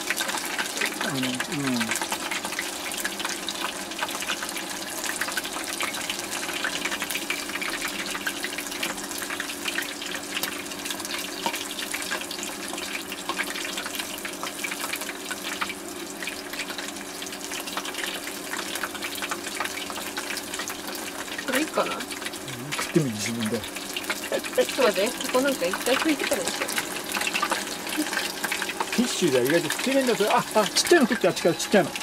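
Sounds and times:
chicken sizzling in hot oil: 0.0 - 32.0.

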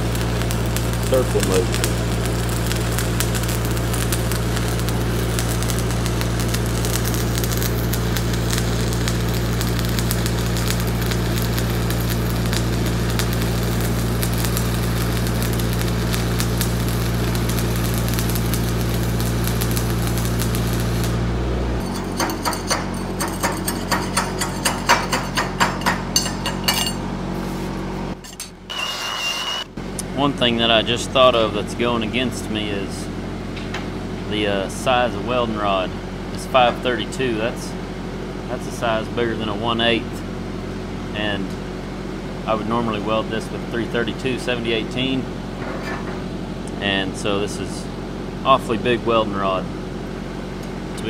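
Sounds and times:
welding arc crackling: 0.0 - 27.1
welding machine hum: 0.0 - 30.0
slag knocks and scrapes: 21.8 - 27.6.

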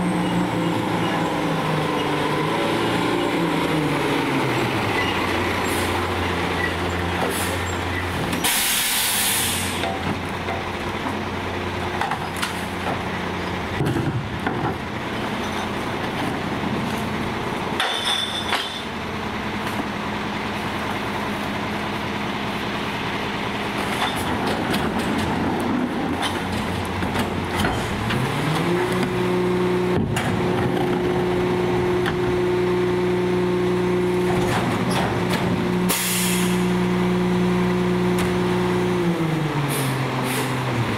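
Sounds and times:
air brake hiss: 8.4 - 9.8, 35.9 - 36.6.

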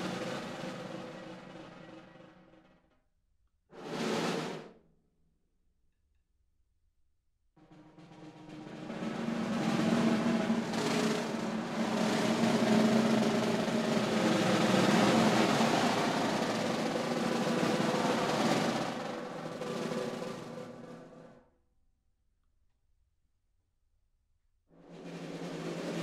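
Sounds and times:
snare drum roll: 0.0 - 2.8, 3.8 - 4.8, 7.6 - 21.4, 24.8 - 26.0.

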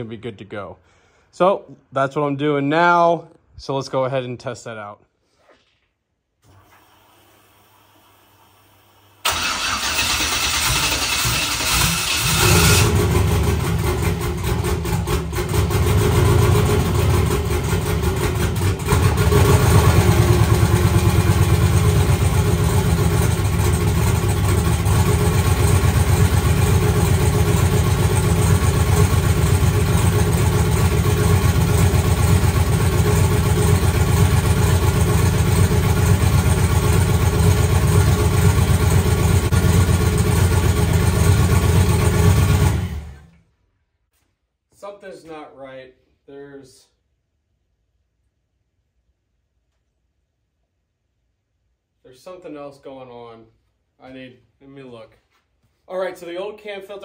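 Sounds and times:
car engine idling: 9.2 - 43.3.

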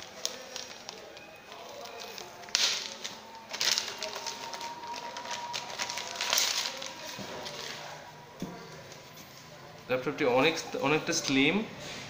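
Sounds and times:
plastic bag rustling: 0.0 - 9.2.

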